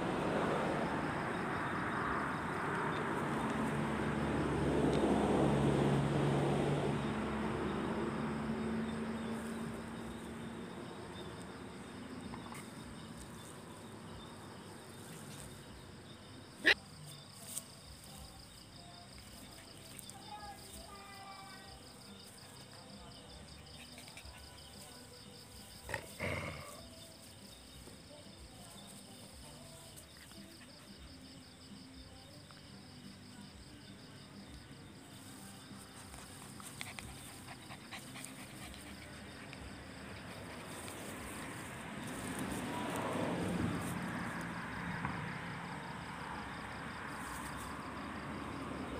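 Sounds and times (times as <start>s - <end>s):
crickets chirring: 0.0s - 48.9s
dog vocalizations: 36.4s - 41.0s.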